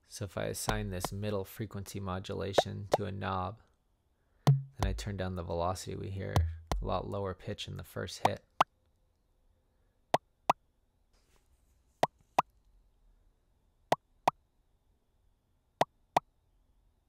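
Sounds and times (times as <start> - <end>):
synthetic drum blips rising in pitch: 4.5 - 5.1.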